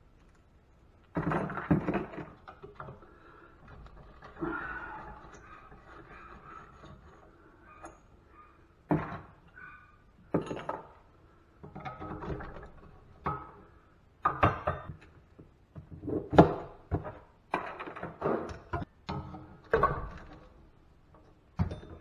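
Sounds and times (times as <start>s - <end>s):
metal tools clinking on wood: 10.3s - 11.1s.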